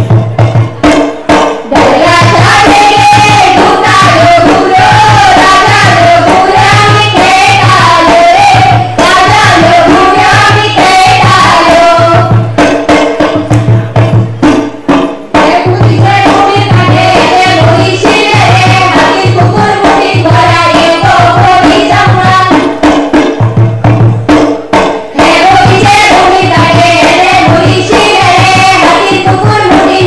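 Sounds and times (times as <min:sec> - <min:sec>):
steady drum beat: 0:00.0 - 0:30.0
women singing together: 0:01.7 - 0:12.8, 0:15.3 - 0:23.3, 0:25.1 - 0:30.0.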